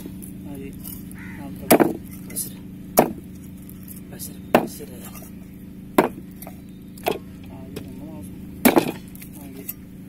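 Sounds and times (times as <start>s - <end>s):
knife chopping meat on wood: 4.5s - 4.8s.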